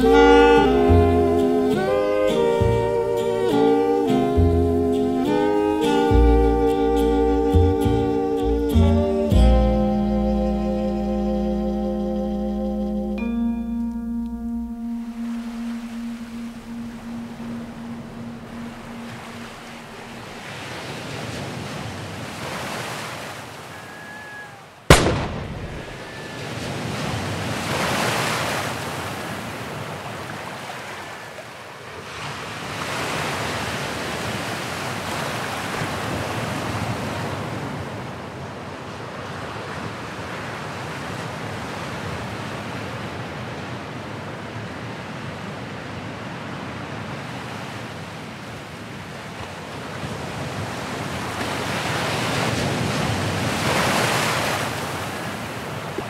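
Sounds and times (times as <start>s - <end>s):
ocean waves surging: 0.0s - 56.0s
sharp bang: 24.9s - 26.2s.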